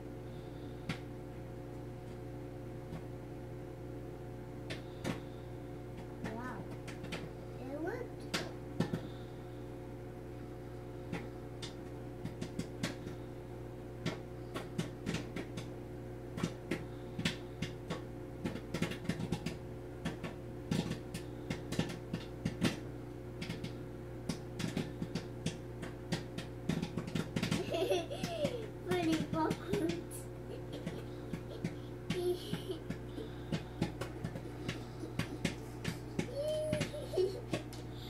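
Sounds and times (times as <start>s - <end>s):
microwave oven hum: 0.0s - 38.0s
popcorn popping: 4.2s - 9.3s, 10.3s - 38.0s.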